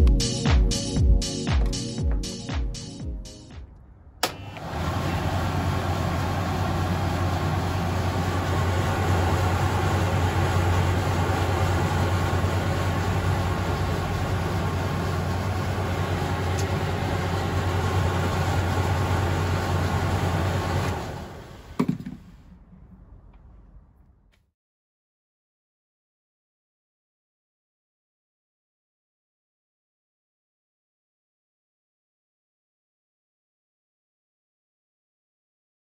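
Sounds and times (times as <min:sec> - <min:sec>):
tumble dryer motor hum: 0:04.2 - 0:23.9.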